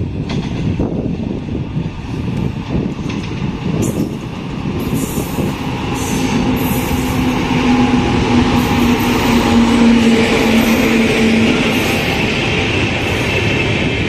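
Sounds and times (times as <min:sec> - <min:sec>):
locomotive hum: 0:00.0 - 0:14.0
train wheels rumbling on rails: 0:00.0 - 0:14.0.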